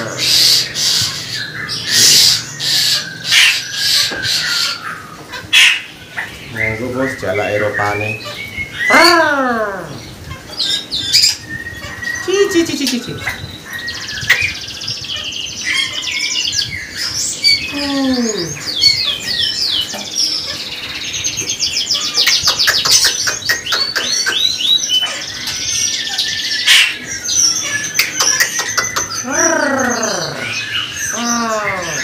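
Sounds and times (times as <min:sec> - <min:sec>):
songbirds chirping and whistling: 0:00.0 - 0:32.0
fast clicking bird notes: 0:22.2 - 0:24.7, 0:28.0 - 0:29.2.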